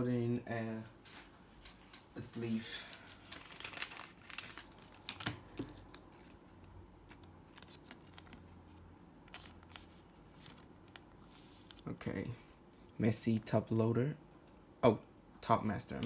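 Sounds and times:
plastic card sleeve rustling: 2.8 - 11.9.

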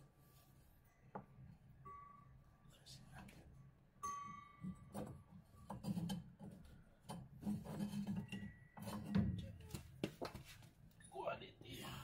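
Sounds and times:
ringing metallic clink: 4.0 - 4.9.

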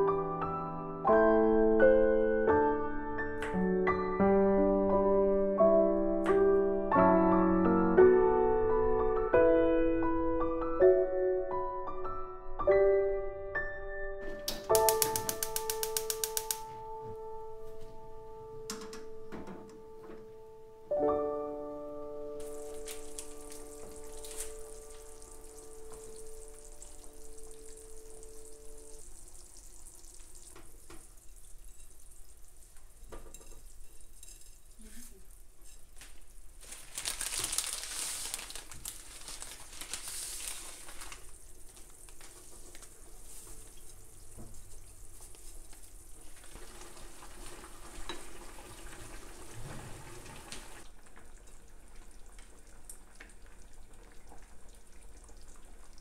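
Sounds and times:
water boiling: 14.3 - 17.1, 22.3 - 56.0
rustling and splashing: 22.4 - 28.4, 29.5 - 50.8.

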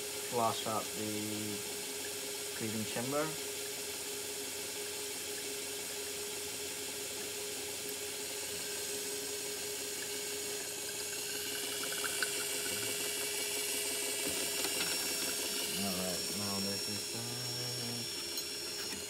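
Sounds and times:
small pump humming: 0.0 - 19.0
water running: 0.2 - 3.6, 7.2 - 19.0.

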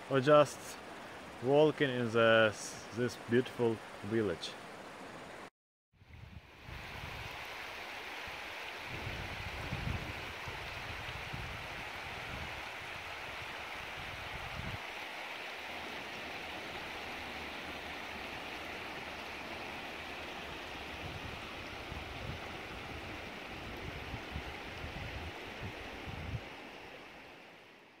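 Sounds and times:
river rushing over stones: 6.5 - 27.9.

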